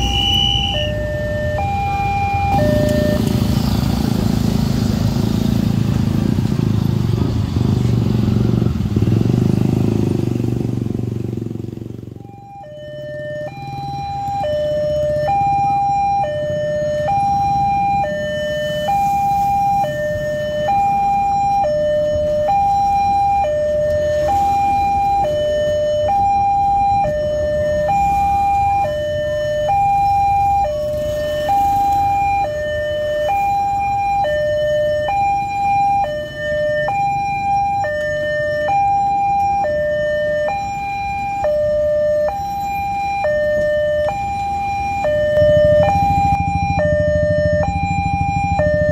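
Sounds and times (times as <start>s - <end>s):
level crossing two-tone alarm: 0.0s - 3.7s, 12.2s - 48.9s.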